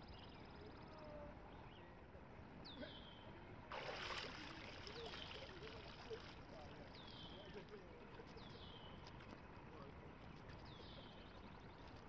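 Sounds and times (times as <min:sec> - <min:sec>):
water splashing and pouring: 0:03.7 - 0:06.4.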